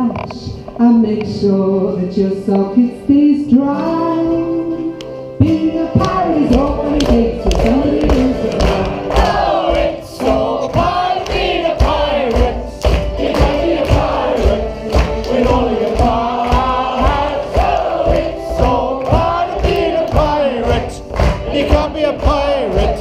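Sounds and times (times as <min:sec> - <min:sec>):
acoustic guitar: 0:00.0 - 0:23.0
group singing: 0:05.4 - 0:23.0
hand-clapping: 0:06.0 - 0:23.0.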